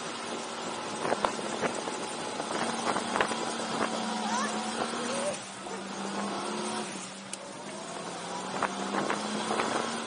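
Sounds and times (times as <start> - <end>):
go-kart engine running: 0.0 - 10.0.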